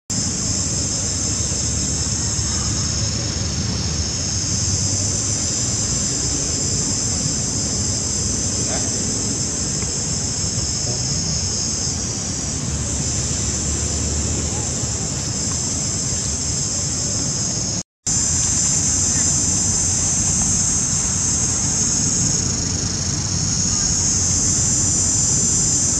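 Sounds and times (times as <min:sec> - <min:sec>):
insects droning: 0:00.1 - 0:25.9.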